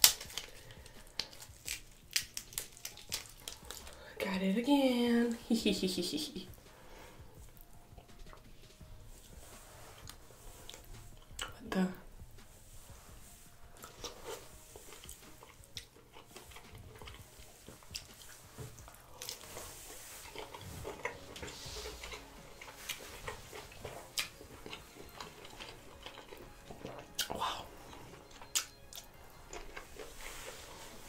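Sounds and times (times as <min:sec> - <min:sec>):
mouth chewing with wet smacks: 0:00.0 - 0:04.0, 0:07.2 - 0:11.6, 0:13.8 - 0:30.6.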